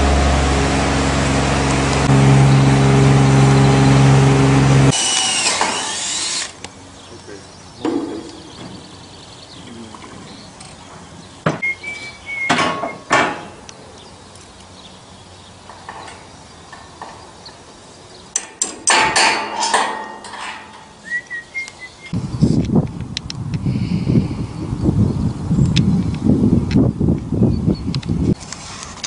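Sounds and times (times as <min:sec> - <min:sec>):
metallic knocks on steel frame: 0:18.4 - 0:20.9
wind buffeting microphone: 0:22.1 - 0:28.5.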